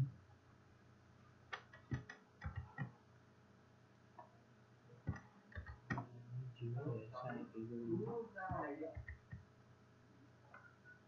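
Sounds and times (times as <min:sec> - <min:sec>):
mouse and keyboard clicks: 0:01.5 - 0:02.9.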